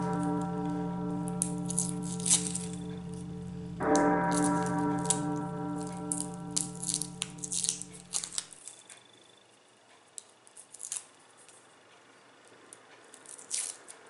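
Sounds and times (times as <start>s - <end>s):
musical jingle: 0.0s - 8.4s
garlic skins crackling: 3.8s - 8.5s, 13.2s - 14.0s.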